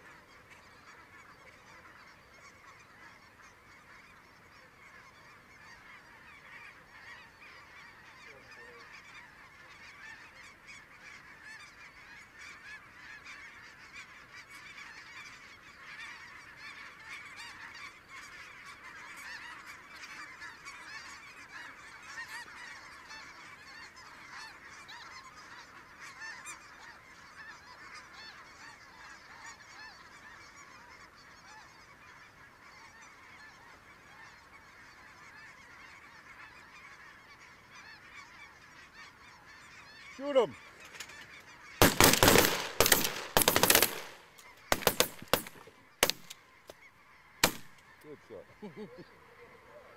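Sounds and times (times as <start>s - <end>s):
flock of geese calling: 0.0s - 49.9s.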